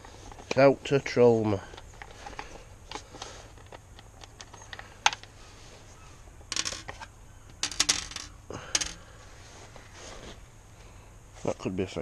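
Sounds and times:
small hard parts clicking: 0:01.7 - 0:05.4, 0:06.4 - 0:09.1.

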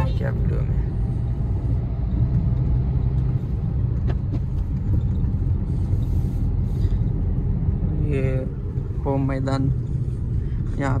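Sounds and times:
car cabin road and engine rumble: 0:00.0 - 0:11.0.

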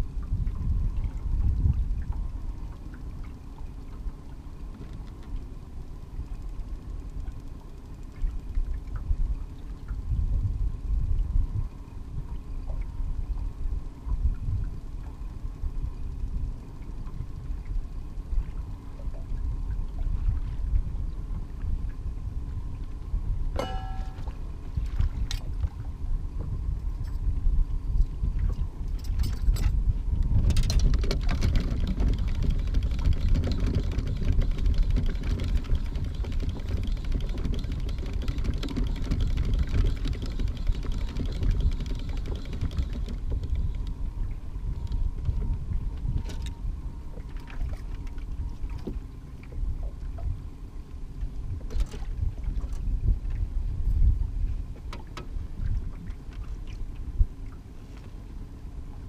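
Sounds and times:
wind buffeting microphone: 0:00.0 - 0:03.7, 0:08.2 - 0:50.6, 0:51.2 - 0:57.6
clicks and knocks of gear: 0:28.0 - 0:44.0, 0:44.8 - 0:46.6, 0:51.7 - 0:52.0.

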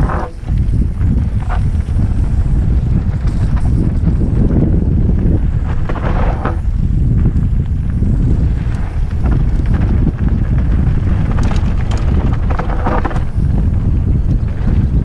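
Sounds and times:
harsh scraping: 0:00.0 - 0:06.9
rattling clicks from bike: 0:00.0 - 0:15.0
wind buffeting microphone: 0:00.0 - 0:15.0.

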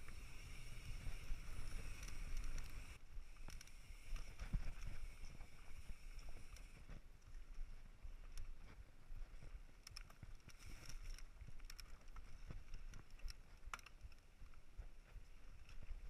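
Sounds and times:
bike clicks and rattles: 0:00.0 - 0:07.0, 0:08.2 - 0:14.6
tyres rumbling on dirt trail: 0:00.0 - 0:07.0.

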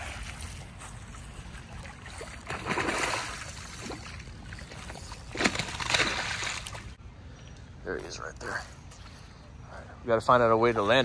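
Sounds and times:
fish splashing and thrashing in water: 0:00.0 - 0:07.0.

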